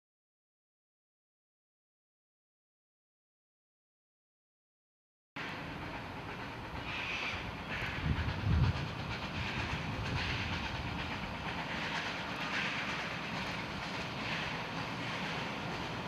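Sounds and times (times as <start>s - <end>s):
steam exhaust puffs hissing: 5.4s - 16.0s
train working rumble: 5.4s - 16.0s.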